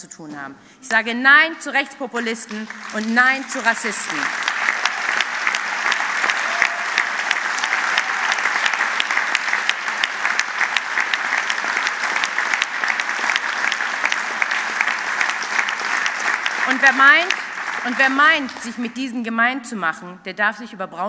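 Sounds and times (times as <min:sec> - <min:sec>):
audience applauding: 0:02.2 - 0:18.9.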